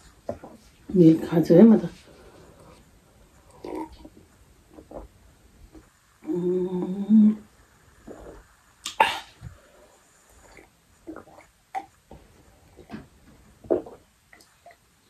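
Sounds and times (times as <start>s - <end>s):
woman moaning: 6.2s - 7.5s
sipping and swallowing: 13.6s - 14.8s.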